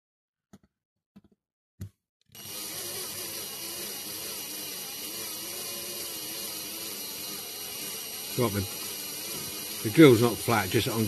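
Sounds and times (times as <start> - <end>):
cordless drill drilling metal: 2.3 - 11.0.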